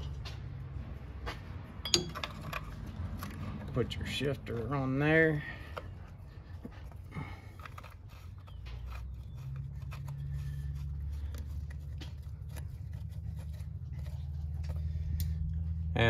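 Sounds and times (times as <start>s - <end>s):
metal clicks and scrapes: 1.9s - 4.8s, 6.6s - 15.5s
low steady hum: 5.4s - 16.0s.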